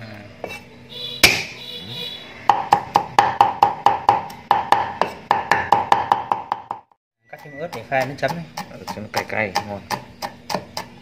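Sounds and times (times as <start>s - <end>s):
knife chopping on wooden board: 1.2s - 1.5s, 2.5s - 6.9s, 7.7s - 11.0s
sharp knock: 1.2s - 1.6s.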